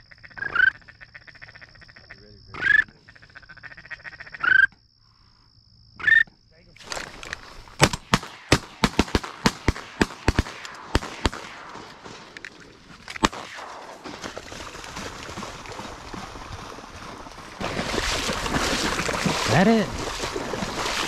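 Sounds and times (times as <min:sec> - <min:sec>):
shotgun shots: 0:07.8 - 0:14.8.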